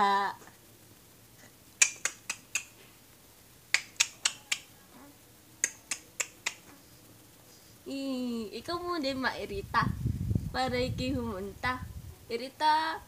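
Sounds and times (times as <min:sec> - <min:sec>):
sharp clicks: 0:01.8 - 0:02.8, 0:03.7 - 0:04.7, 0:05.6 - 0:06.7.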